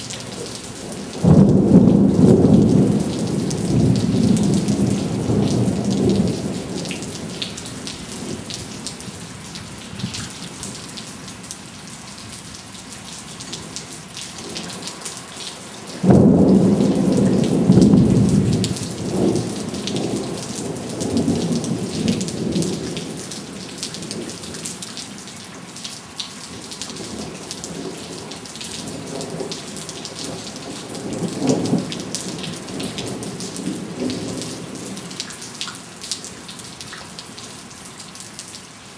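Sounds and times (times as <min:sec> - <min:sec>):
heavy rain falling: 0:00.0 - 0:38.9
thunder rumbling and clapping: 0:01.2 - 0:08.7, 0:16.0 - 0:24.7.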